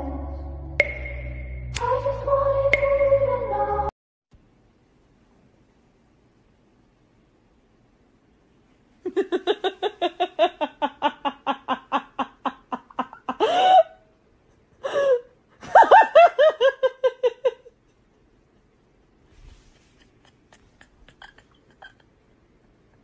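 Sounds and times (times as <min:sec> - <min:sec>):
person laughing: 0:09.0 - 0:18.2, 0:19.8 - 0:22.2.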